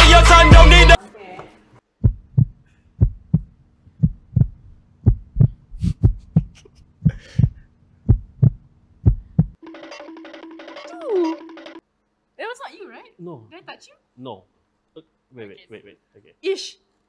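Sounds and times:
heartbeat thumps: 2.0s - 9.6s.

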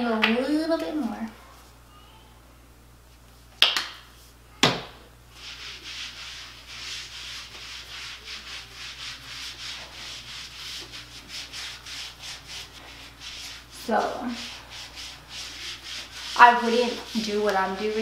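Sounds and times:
mitt rubbing on skin: 5.3s - 18.0s.

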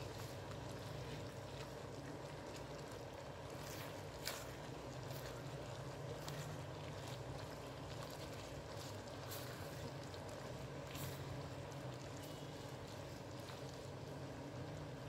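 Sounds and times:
spatula stirring in syrup: 0.0s - 15.0s.

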